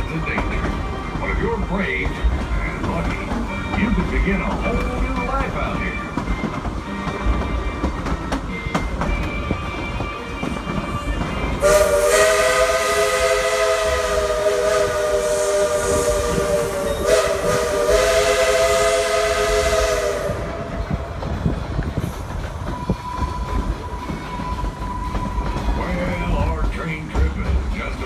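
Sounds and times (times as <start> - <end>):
train coach rumbling on track: 0.0 - 28.0
train chime whistle: 5.7 - 21.1.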